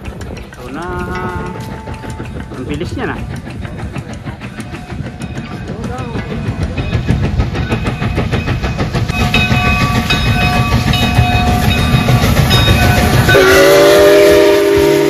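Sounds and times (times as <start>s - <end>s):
steam locomotive chuffing: 0.0s - 15.0s
wheels running on rails: 0.0s - 15.0s
steam whistle chord: 13.3s - 15.0s.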